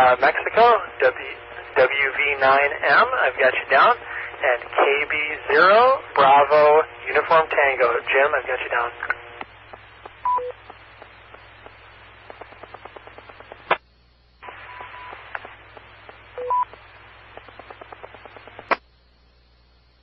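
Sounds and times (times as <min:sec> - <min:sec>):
radio carrier hiss: 0:00.0 - 0:20.0
brief steady beep: 0:10.2 - 0:10.6.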